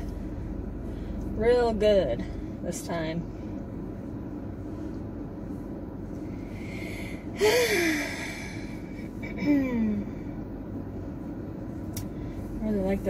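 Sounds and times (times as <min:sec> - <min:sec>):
low hum in car cabin: 0:00.0 - 0:13.0
person sighing: 0:07.4 - 0:08.6.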